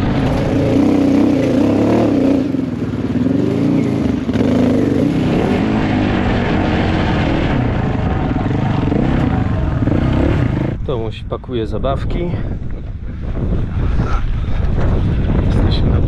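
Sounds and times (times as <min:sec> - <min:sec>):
motorcycle engine revving: 0:00.0 - 0:10.8.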